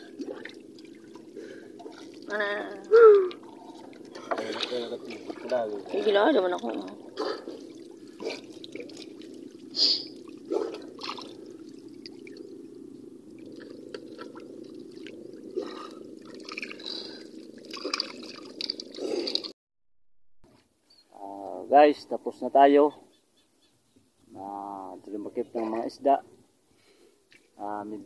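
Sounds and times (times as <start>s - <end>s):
fish splashing in water: 0.0s - 12.7s, 13.3s - 19.5s
low hum: 0.0s - 19.5s.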